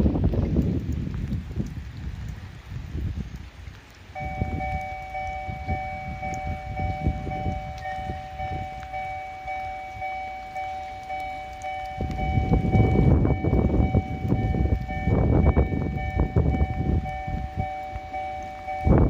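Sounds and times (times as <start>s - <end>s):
wind on microphone: 0.0s - 19.0s
two-tone railway warning bell: 4.2s - 19.0s.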